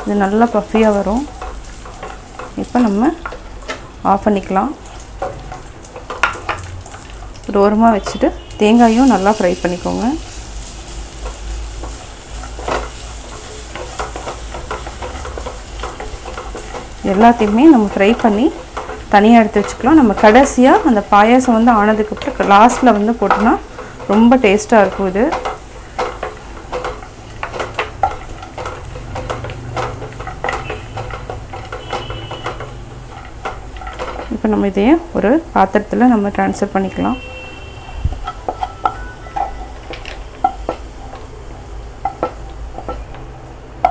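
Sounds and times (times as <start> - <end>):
food sizzling in ghee: 0.0 - 43.9
wooden spatula scraping pot: 8.7 - 34.6.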